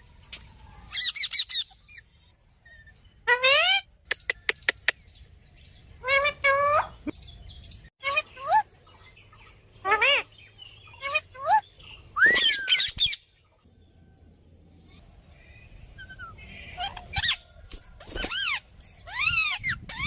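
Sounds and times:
parakeet squawking: 9.8s - 10.3s, 10.9s - 11.6s.

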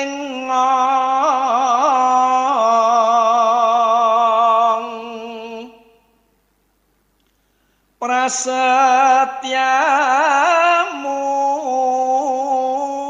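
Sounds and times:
person singing: 8.0s - 13.0s.

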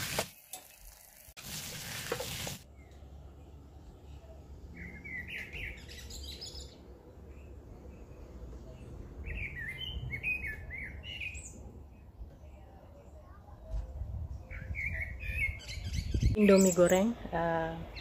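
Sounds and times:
bird chirping: 2.7s - 13.0s.

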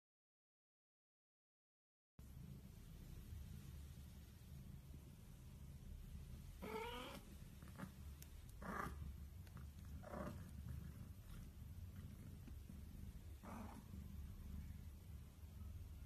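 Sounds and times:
faint low purr: 2.2s - 16.0s
kitten mewing: 6.6s - 7.2s.

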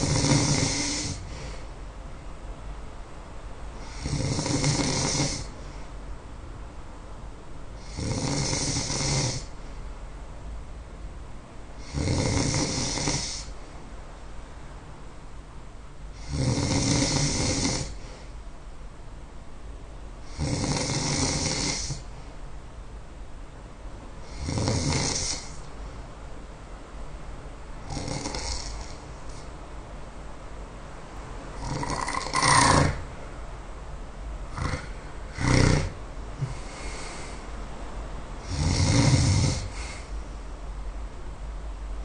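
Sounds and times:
person snoring: 0.0s - 1.6s, 3.8s - 5.6s, 7.8s - 9.6s, 11.8s - 13.6s, 16.2s - 18.1s, 20.3s - 22.1s, 24.2s - 25.6s, 27.8s - 29.1s, 31.6s - 33.1s, 34.5s - 37.4s, 38.4s - 40.1s.

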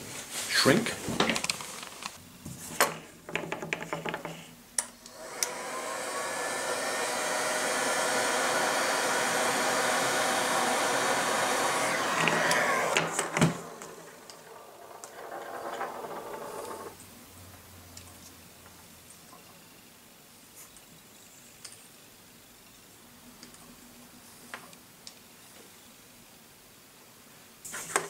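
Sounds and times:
heat gun fan whining: 5.0s - 17.0s.

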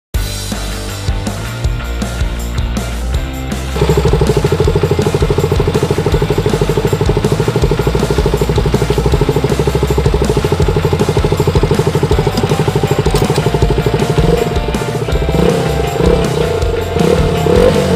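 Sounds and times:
motorcycle engine idling: 3.7s - 17.9s.

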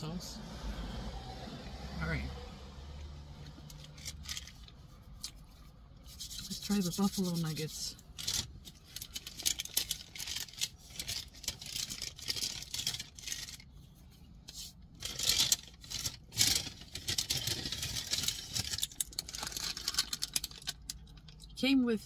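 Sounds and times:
paper bag rustling and crinkling: 8.2s - 13.7s, 14.5s - 21.0s.

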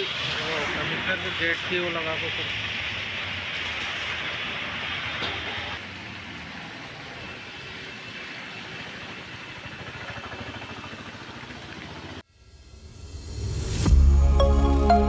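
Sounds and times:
heavy rain on a wet street: 0.0s - 9.0s.

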